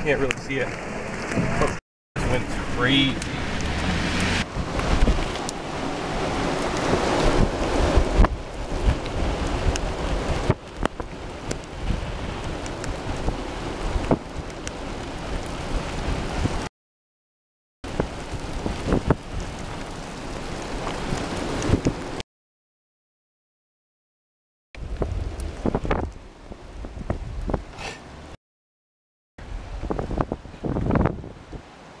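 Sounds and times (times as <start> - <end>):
rain spattering on car: 0.0 - 16.7, 17.9 - 22.2
wind gusting on microphone: 0.7 - 16.7, 17.8 - 22.2, 24.8 - 28.4, 29.4 - 31.9.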